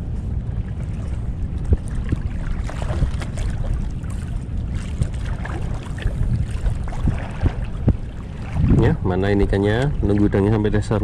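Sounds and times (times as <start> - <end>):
sea water sloshing and lapping: 0.0 - 11.0
small splashes and knocks: 0.9 - 8.9.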